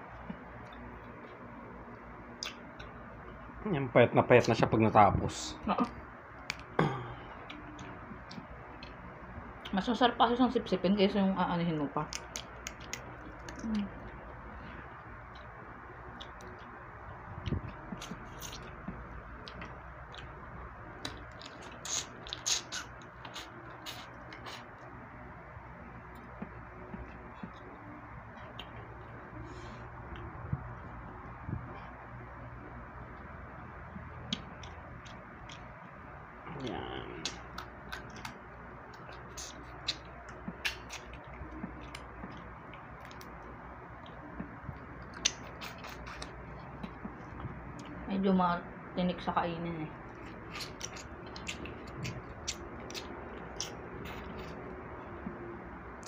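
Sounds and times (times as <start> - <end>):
low steady hum: 0.0 - 56.0
eating clicks and smacks: 0.2 - 3.0, 6.4 - 6.8, 12.0 - 24.9, 26.1 - 29.2, 33.1 - 36.0, 37.0 - 48.0, 50.1 - 56.0
mouth sucking sounds: 21.6 - 24.7.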